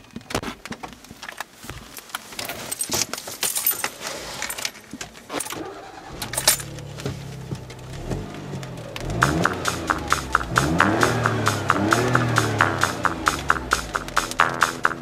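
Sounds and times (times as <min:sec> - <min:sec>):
car keys jangling: 0:02.4 - 0:09.6
car engine starting and running: 0:05.3 - 0:15.0.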